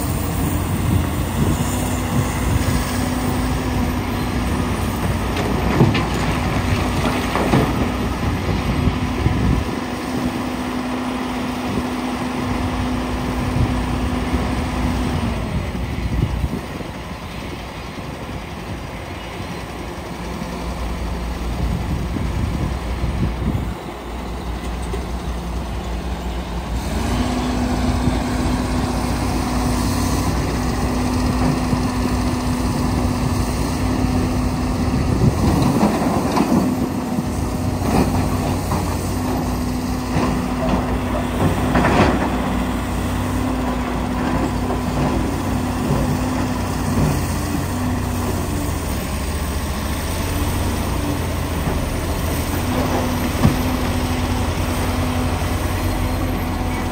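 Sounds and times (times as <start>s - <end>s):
excavator diesel engine under load: 0.0s - 56.9s.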